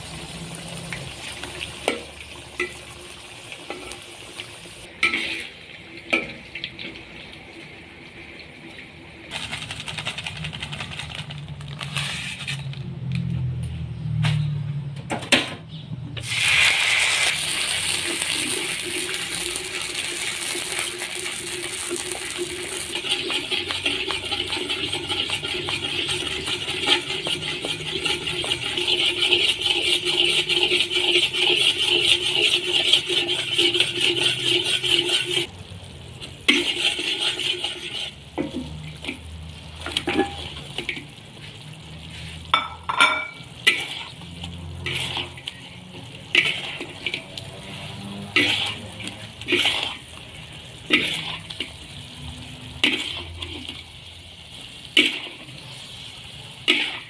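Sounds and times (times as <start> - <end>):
syrup bubbling and sizzling: 0.0 - 12.6, 16.2 - 57.0
metal spatula rattling on pan: 9.3 - 11.8, 21.8 - 35.5, 48.2 - 50.0.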